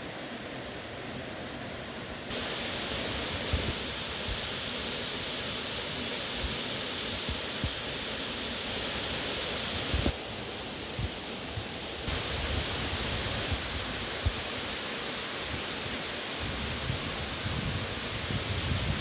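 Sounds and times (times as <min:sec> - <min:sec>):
waterfall rushing into pool: 0:02.3 - 0:19.0
wind bumps on microphone: 0:03.2 - 0:03.8, 0:16.4 - 0:19.0.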